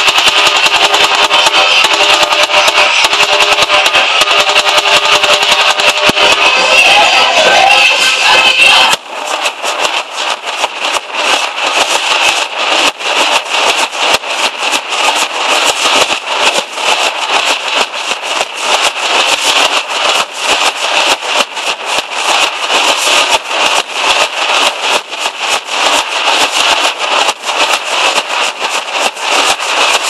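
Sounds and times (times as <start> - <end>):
drum troupe drumming: 0.0 - 7.0.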